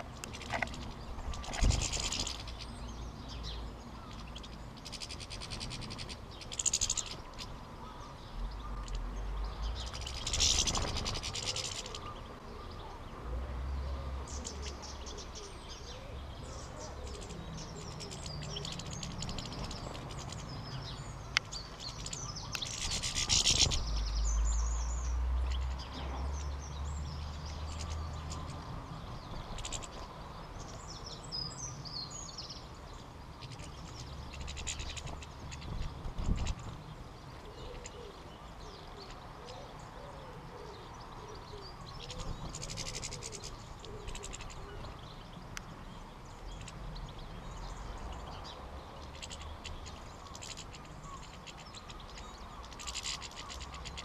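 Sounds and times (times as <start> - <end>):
birds twittering and chirping: 0.0 - 54.0
low wind rumble: 0.0 - 54.0
wings fluttering: 0.2 - 2.6, 9.8 - 12.1, 21.8 - 24.1, 33.4 - 36.8, 42.0 - 44.6, 49.1 - 54.0.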